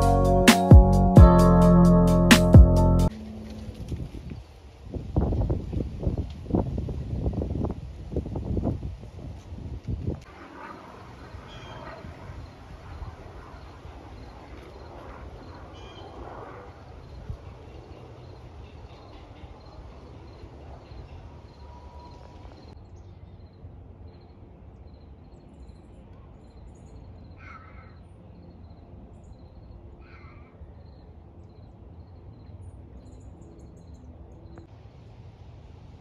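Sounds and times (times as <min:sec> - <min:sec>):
crow cawing: 0:27.4 - 0:28.0, 0:30.0 - 0:30.5.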